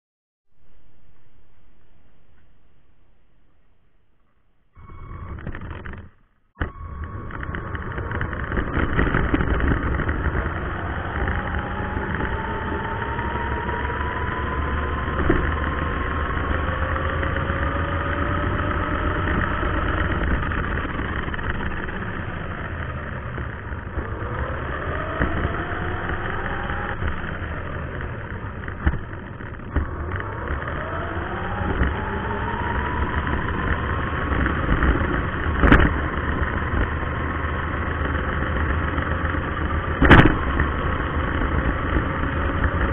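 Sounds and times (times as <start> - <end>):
steady low rumble: 0.5 - 18.0.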